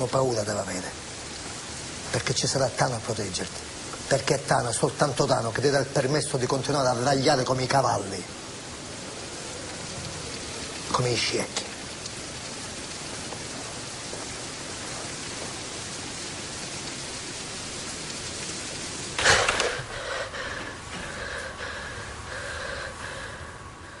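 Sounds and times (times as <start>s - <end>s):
steady hiss: 0.0s - 24.0s.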